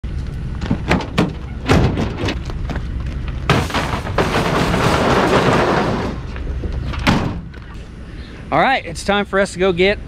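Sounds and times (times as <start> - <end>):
tailgate clicks and knocks: 0.6 - 2.4, 6.9 - 7.6.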